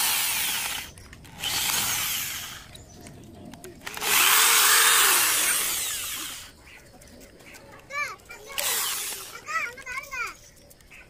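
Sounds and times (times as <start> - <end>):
power tool high-pitched whine: 0.0 - 2.7, 3.9 - 6.5, 8.6 - 9.3.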